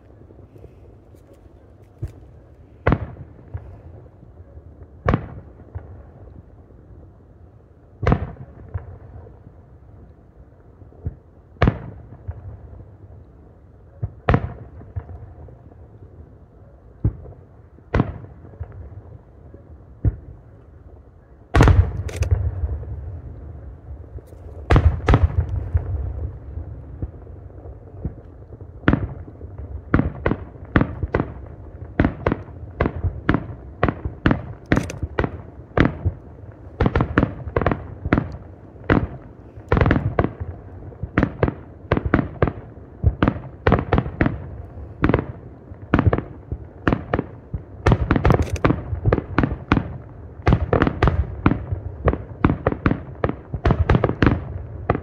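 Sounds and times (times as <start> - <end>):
fireworks bangs: 21.6 - 23.2, 23.8 - 55.0.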